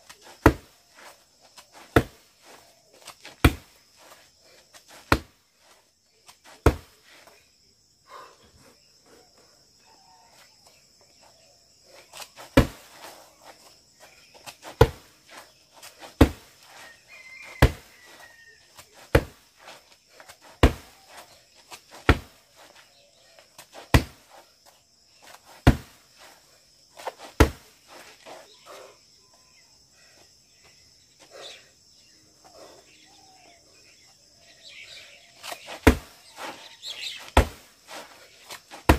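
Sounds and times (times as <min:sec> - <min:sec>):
kicks slapping a kick pad: 0:00.4 - 0:00.7, 0:01.8 - 0:02.2, 0:03.4 - 0:03.7, 0:05.1 - 0:05.4, 0:06.6 - 0:06.9, 0:12.5 - 0:12.9, 0:14.7 - 0:15.1, 0:16.1 - 0:16.5, 0:17.6 - 0:17.9, 0:19.1 - 0:19.4, 0:20.6 - 0:21.0, 0:22.0 - 0:22.4, 0:23.8 - 0:24.2, 0:25.6 - 0:26.0, 0:27.3 - 0:27.7, 0:35.4 - 0:36.2, 0:37.3 - 0:37.7.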